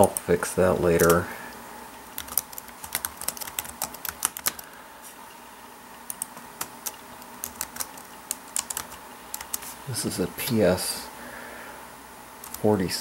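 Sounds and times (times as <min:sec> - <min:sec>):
keyboard typing: 0:00.9 - 0:01.2, 0:02.1 - 0:04.7, 0:06.0 - 0:09.7, 0:12.4 - 0:12.6.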